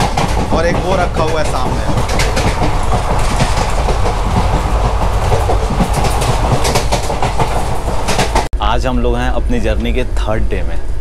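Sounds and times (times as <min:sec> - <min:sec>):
wheels clacking over rail joints: 0:00.0 - 0:08.5
train wheels rumbling: 0:00.0 - 0:11.0.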